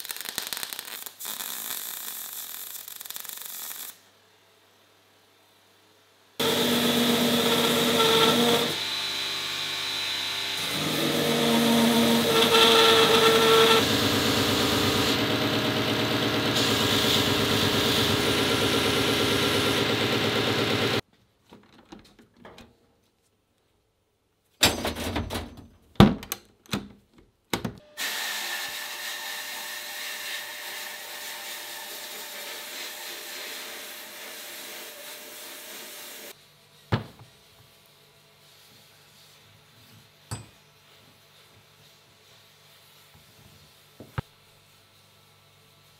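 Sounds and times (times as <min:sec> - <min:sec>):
belt grinder grinding metal: 0:06.4 - 0:21.0.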